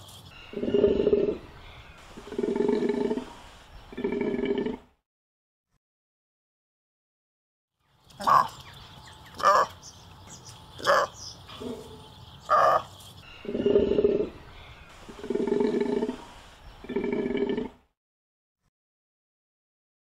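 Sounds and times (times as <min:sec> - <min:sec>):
takin calling: 0:08.2 - 0:16.2.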